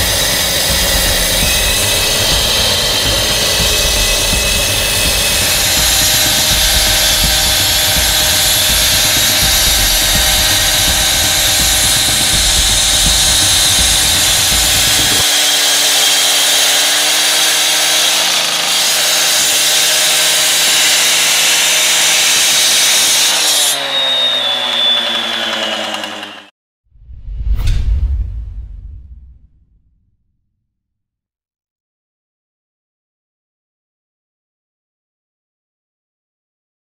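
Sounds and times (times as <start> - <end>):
cut-off saw cutting concrete: 0.0 - 26.5.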